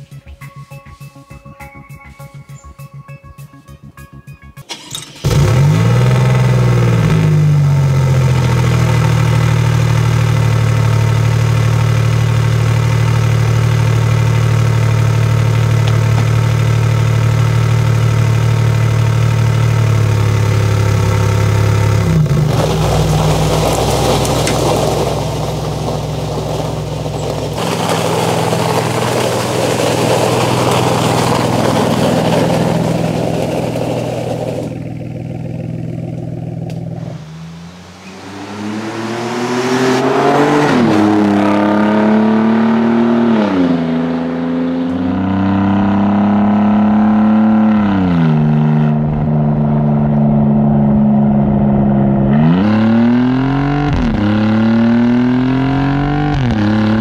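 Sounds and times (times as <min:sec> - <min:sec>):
car engine idling: 0:04.7 - 0:40.2.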